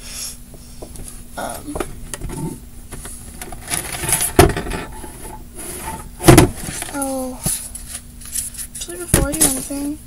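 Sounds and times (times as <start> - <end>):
loud thumps on floor: 6.2 - 6.6.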